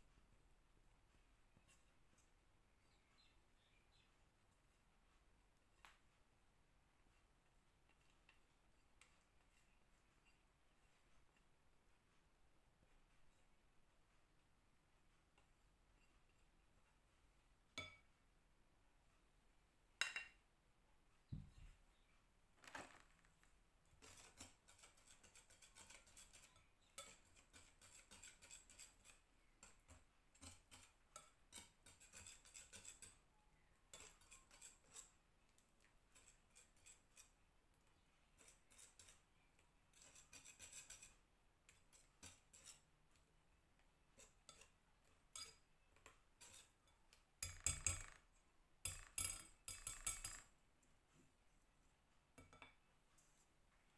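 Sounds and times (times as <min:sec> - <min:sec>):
whisk beating batter in glass bowl: 0:24.0 - 0:33.2, 0:33.9 - 0:35.2, 0:40.0 - 0:42.8, 0:47.4 - 0:48.1.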